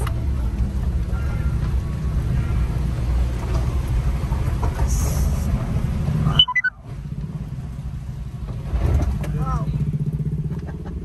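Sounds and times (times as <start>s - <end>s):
car driving rumble: 0.0s - 11.0s
falling run of short beeps: 6.3s - 6.8s.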